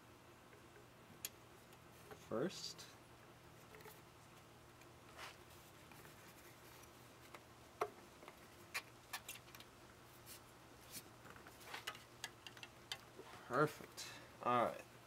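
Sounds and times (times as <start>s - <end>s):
faint clicks and taps: 5.8s - 9.7s, 11.2s - 13.2s.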